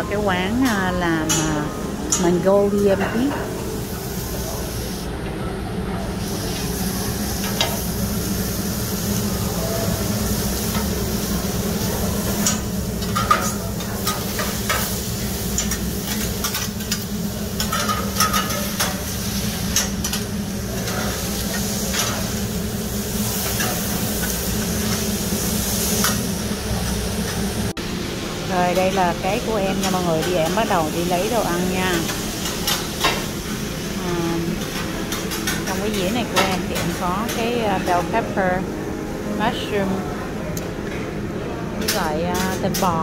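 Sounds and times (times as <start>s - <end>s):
food sizzling on griddle: 6.1s - 38.2s.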